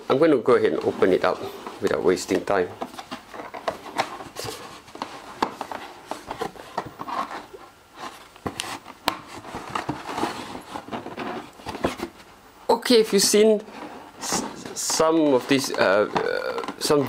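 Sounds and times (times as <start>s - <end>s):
cardboard rubbing and scraping: 0.6s - 12.3s, 13.3s - 17.0s.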